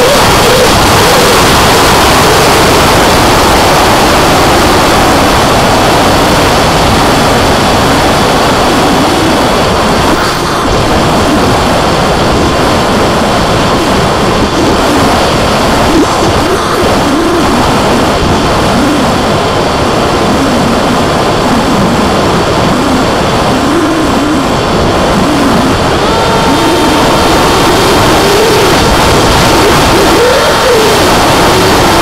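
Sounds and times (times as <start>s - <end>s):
wind buffeting camera: 0.0s - 32.0s
electric motor and propeller: 6.7s - 32.0s.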